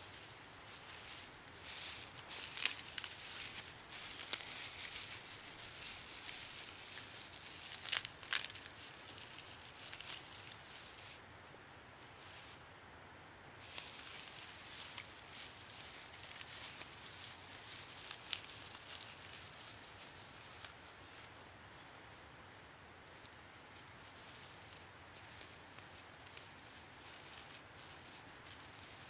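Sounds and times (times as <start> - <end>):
dry grass rustling and crackling: 0.0 - 12.8, 13.5 - 29.0.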